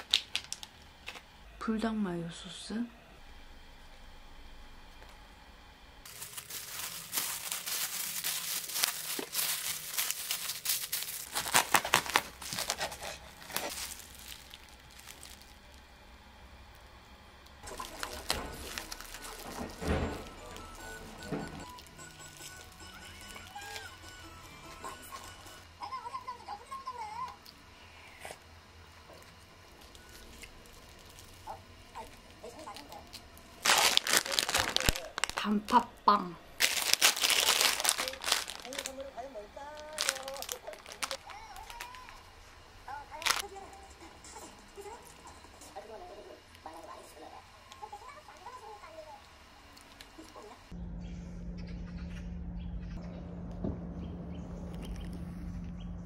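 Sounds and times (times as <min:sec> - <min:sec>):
paper crinkling: 0:06.0 - 0:15.8, 0:17.6 - 0:25.4, 0:29.2 - 0:35.9, 0:36.6 - 0:43.5
knife cutting through wrapped sandwich: 0:06.1 - 0:15.3, 0:33.6 - 0:35.4, 0:36.6 - 0:39.0.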